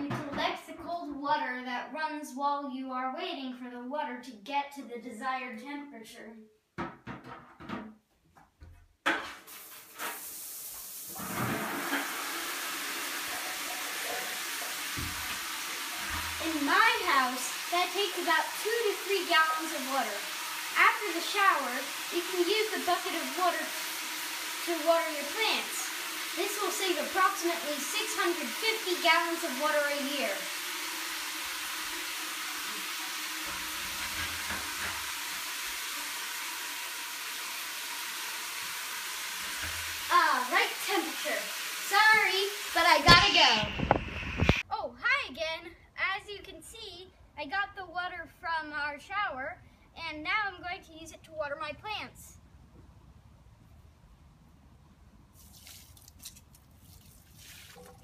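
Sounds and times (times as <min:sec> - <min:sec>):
shower tap knock: 0:06.8 - 0:08.0, 0:14.0 - 0:16.4, 0:33.4 - 0:35.2, 0:39.4 - 0:40.1
shower spray into bucket: 0:09.2 - 0:44.6, 0:55.3 - 0:58.0.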